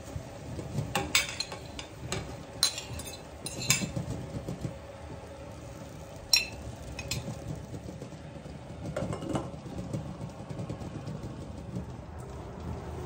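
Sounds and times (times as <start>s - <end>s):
metal utensil clinking on saucepan: 1.0s - 4.0s, 6.3s - 7.3s.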